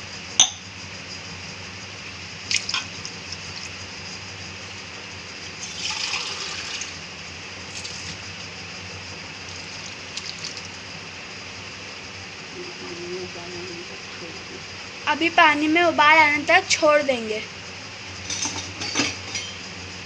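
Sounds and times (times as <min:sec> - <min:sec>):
liquid hissing and bubbling: 0:05.5 - 0:11.0.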